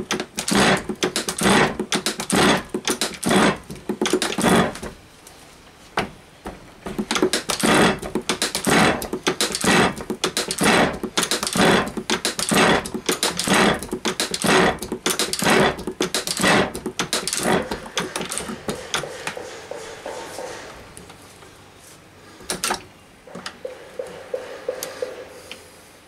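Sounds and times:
metal shaper scraping cuts: 0.0s - 4.8s, 7.0s - 20.8s
shaper clicks: 7.0s - 19.8s.

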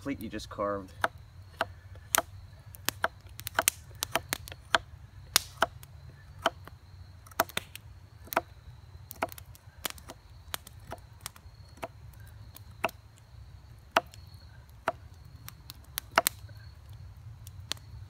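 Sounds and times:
knife chopping wood: 1.0s - 5.8s, 6.4s - 6.6s, 7.3s - 8.5s, 9.2s - 9.4s.

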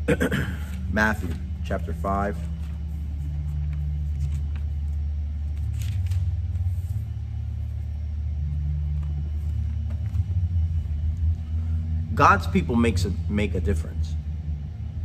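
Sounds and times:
low mechanical rumble: 0.0s - 15.0s.

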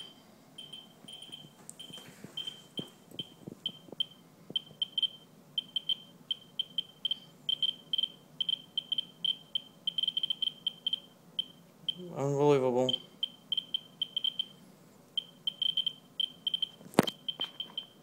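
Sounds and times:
geiger counter clicking: 3.2s - 12.0s, 12.9s - 14.5s, 15.2s - 18.0s.

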